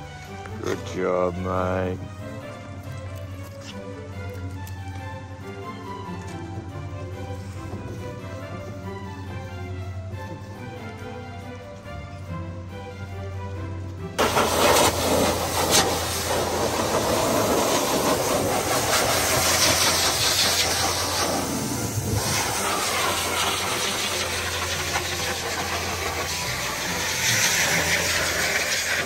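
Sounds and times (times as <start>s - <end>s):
pet dryer blowing air: 14.2s - 29.0s.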